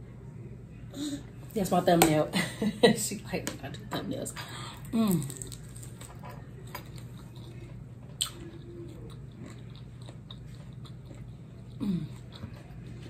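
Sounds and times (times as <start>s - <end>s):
person chewing crispy food: 4.8s - 13.0s.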